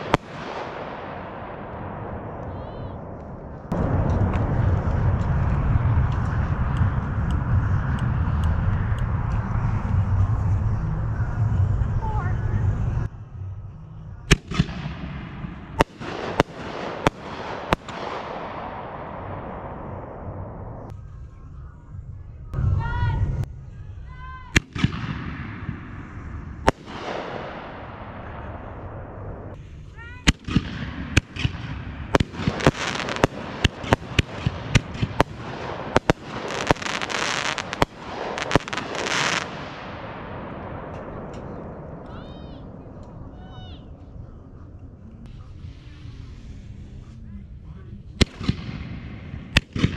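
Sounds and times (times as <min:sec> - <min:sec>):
fireworks bangs: 0:00.0 - 0:09.7, 0:14.3 - 0:20.9, 0:24.6 - 0:29.6, 0:30.2 - 0:43.8
firework hissing tail: 0:32.1 - 0:40.3.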